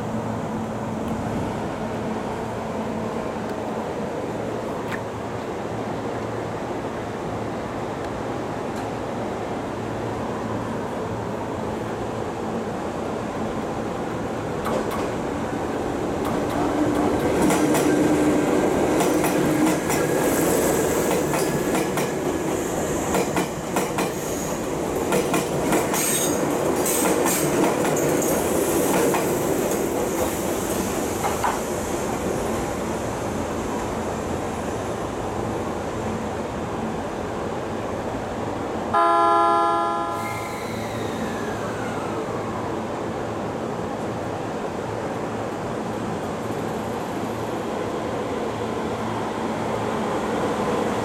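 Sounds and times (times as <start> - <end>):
train wheels clacking on rail joints: 14.6 - 15.2, 16.2 - 31.7
train wheel squeals: 22.6 - 24.7, 25.9 - 28.7, 40.1 - 42.6.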